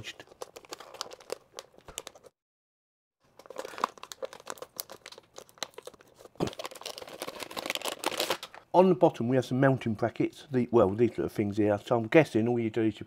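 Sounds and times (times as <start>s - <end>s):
plastic bag crinkling: 0.0s - 2.3s, 3.2s - 8.6s.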